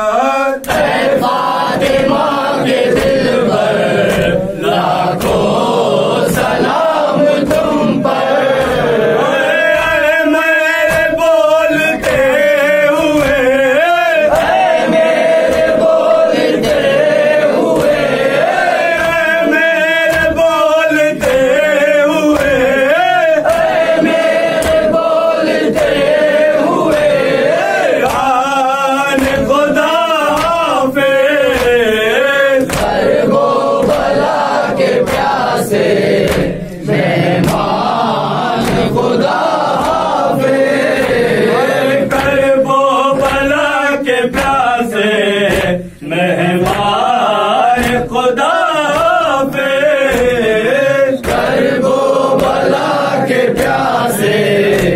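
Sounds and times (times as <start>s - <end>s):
lead male voice singing: 0.0s - 54.9s
men chanting a lament: 0.0s - 54.9s
hands beating on chests: 8.5s - 25.0s, 25.6s - 30.8s, 32.6s - 34.3s, 37.3s - 37.8s, 43.1s - 43.6s, 44.3s - 44.7s, 47.8s - 48.1s.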